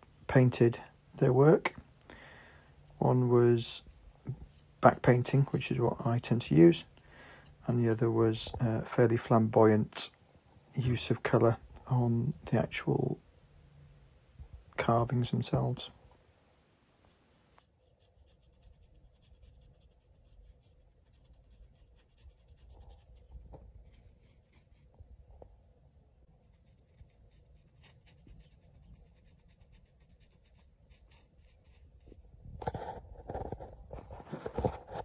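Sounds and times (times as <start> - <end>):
paintbrush scratching on wood: 17.6 - 24.9, 26.4 - 33.3.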